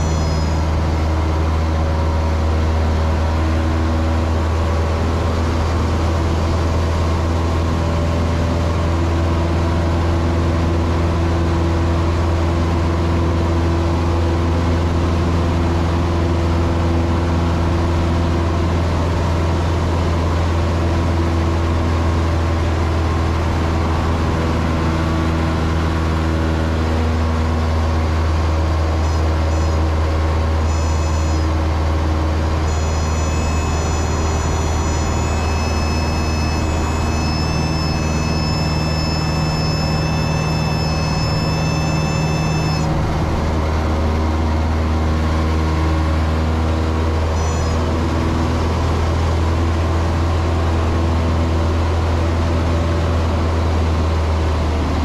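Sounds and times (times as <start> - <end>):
thin high steady tone: 0.0 - 0.7, 32.7 - 42.9
aircraft engine and propeller droning: 0.0 - 55.0.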